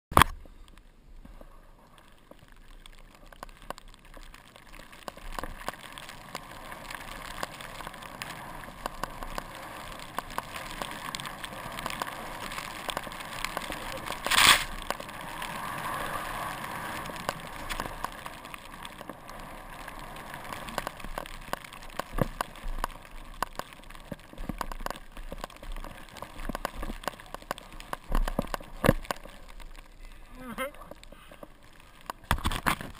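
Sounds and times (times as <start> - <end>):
skis hissing through powder snow: 6.1 - 20.9.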